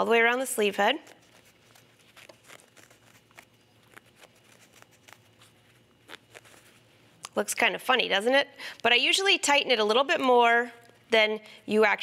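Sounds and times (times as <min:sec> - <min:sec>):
fabric rustling: 0:00.9 - 0:07.1.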